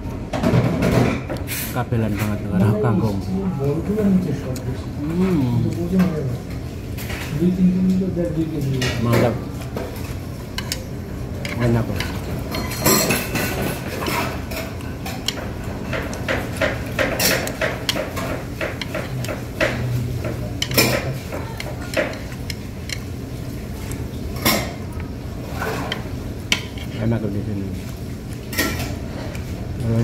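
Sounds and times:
metal chopsticks clicking on dishes: 10.6s - 12.2s, 14.5s - 23.0s.

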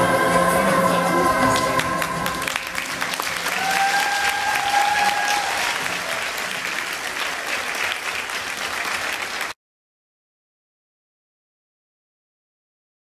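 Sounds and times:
audience applauding: 1.5s - 9.6s.

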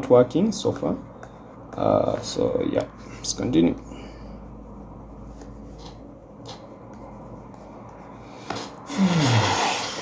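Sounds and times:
low steady hum: 0.0s - 10.0s
stylus scratching on drawing tablet: 4.7s - 8.2s.

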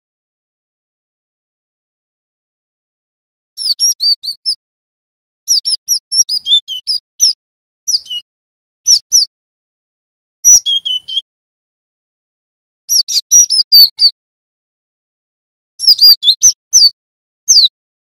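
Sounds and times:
bird song high sharp chirps: 3.6s - 4.6s, 5.4s - 8.3s, 8.9s - 9.3s, 10.4s - 11.3s, 12.9s - 14.2s, 15.8s - 17.8s.

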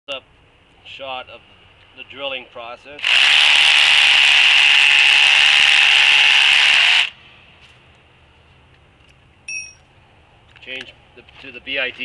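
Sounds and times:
drill boring into concrete: 3.0s - 7.2s
brief ringing tone: 9.5s - 9.8s.

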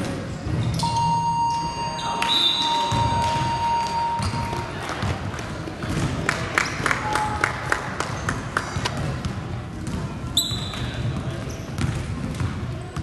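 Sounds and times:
steady high tone: 0.8s - 4.8s
voices murmuring: 0.8s - 5.2s.

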